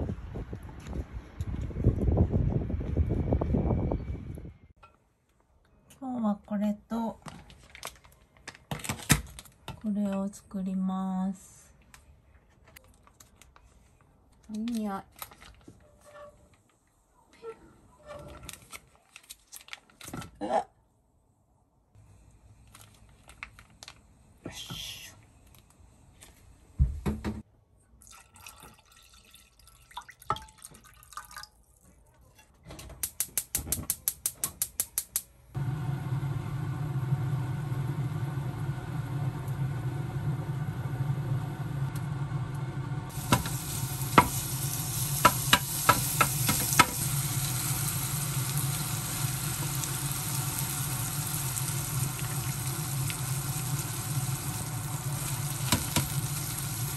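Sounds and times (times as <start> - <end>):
steady low hum: 35.6 - 45.8
food sizzling in a pan: 43.1 - 56.9.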